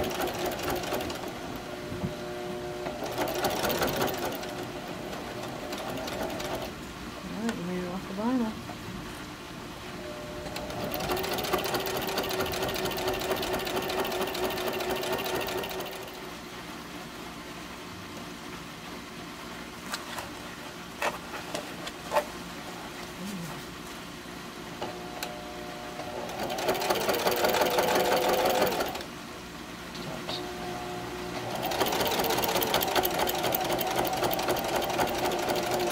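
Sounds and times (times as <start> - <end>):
sewing machine stitching: 0.0 - 1.3, 3.0 - 6.7, 10.6 - 16.2, 26.2 - 29.1, 31.5 - 35.9.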